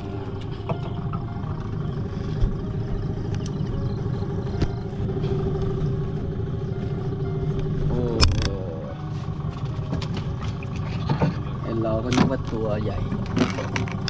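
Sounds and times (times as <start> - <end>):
engine idling: 0.0 - 14.0
sharp knocks and clatter: 9.5 - 14.0.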